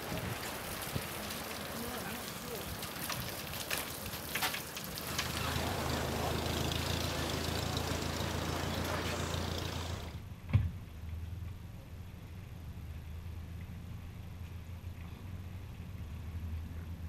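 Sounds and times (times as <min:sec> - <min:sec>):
hose water spraying: 0:00.0 - 0:10.2
tractor engine running: 0:04.8 - 0:10.2
thump: 0:10.5 - 0:10.8.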